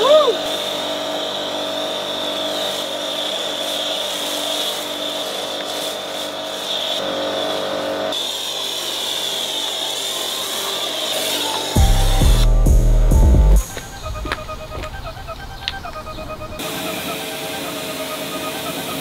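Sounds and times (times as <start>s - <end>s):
pressure washer pump humming: 0.0s - 19.0s
foam spray hissing: 2.3s - 12.3s.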